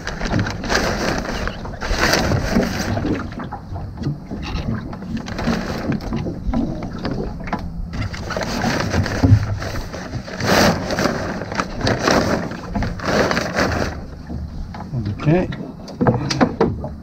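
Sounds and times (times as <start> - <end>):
sailcloth rustling and flapping: 0.0 - 7.3, 7.9 - 15.4.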